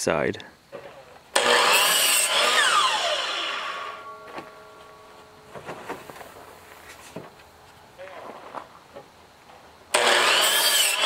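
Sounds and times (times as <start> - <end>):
miter saw cutting wood: 0.7 - 4.6, 9.9 - 11.0
saw motor winding down: 1.3 - 4.3, 9.9 - 11.0.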